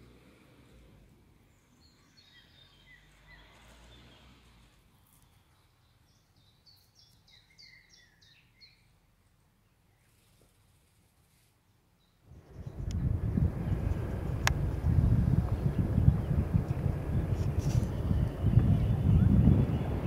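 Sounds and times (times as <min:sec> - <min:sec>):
songbird calls: 0:01.5 - 0:04.5, 0:05.1 - 0:09.0
low rumble: 0:12.3 - 0:20.0.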